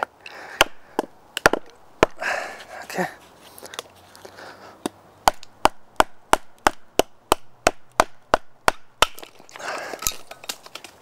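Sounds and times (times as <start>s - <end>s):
wood splitting: 0.5s - 3.0s, 5.2s - 11.0s.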